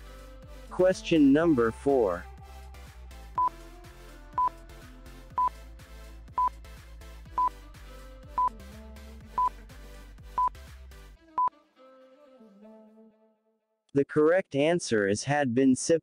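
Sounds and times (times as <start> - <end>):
light background music: 0.0 - 11.5.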